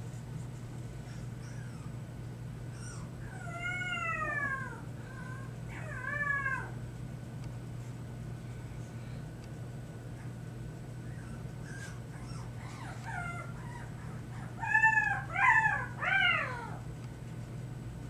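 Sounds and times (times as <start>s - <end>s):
puppy whining cries: 1.0s - 2.0s, 2.7s - 6.8s, 11.0s - 16.8s.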